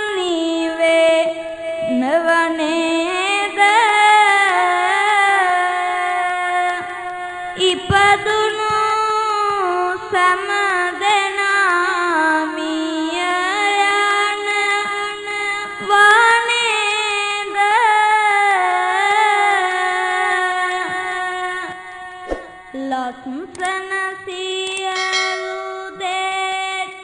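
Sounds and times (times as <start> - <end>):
person chanting: 22.5 - 27.0.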